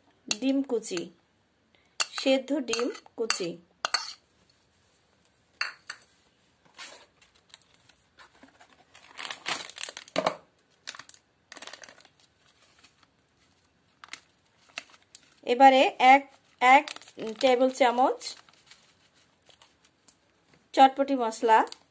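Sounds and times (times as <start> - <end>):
foil packet crinkling: 7.1 - 15.5, 16.3 - 20.3.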